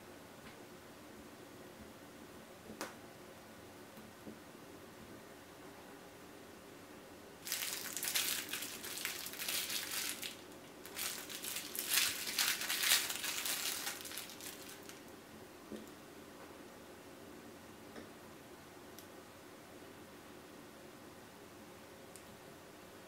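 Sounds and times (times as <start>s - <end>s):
plastic wrapper crinkling: 7.4s - 15.1s.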